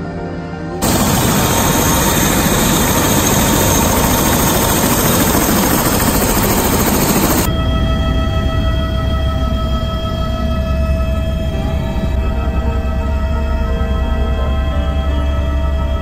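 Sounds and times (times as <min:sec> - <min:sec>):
helicopter turbine engine running: 0:00.8 - 0:07.5.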